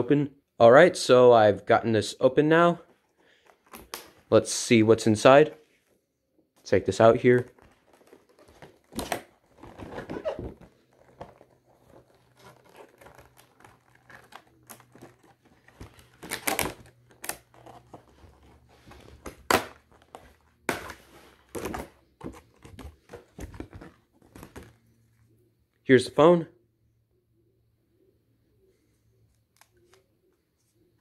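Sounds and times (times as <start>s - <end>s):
plastic packaging crinkling: 7.2s - 24.8s.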